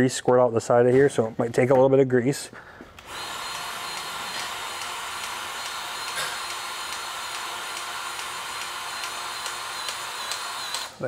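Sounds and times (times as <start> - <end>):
powered grease gun whining: 2.9 - 11.0.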